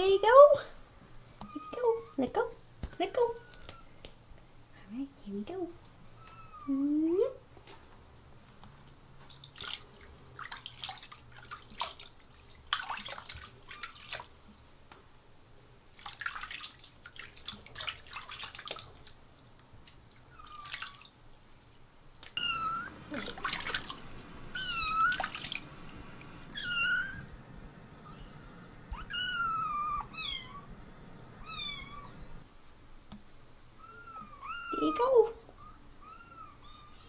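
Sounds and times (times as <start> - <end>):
water splashing in sink: 9.3 - 14.4, 15.9 - 19.2, 19.8 - 21.1, 22.2 - 26.8
kitten mewing: 24.5 - 25.4, 26.5 - 27.3, 28.9 - 30.7.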